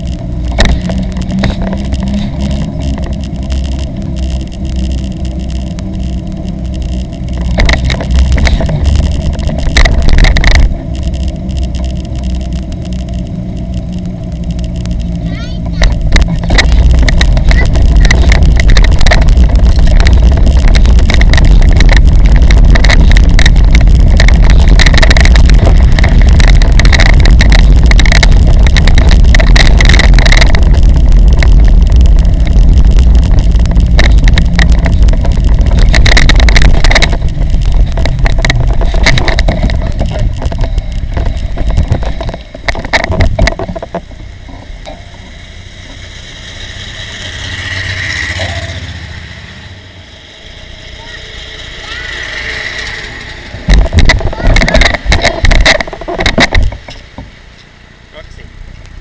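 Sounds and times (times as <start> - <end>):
wheels rumbling on road: 0.0 - 59.0
wind buffeting microphone: 14.6 - 44.8, 51.5 - 57.4.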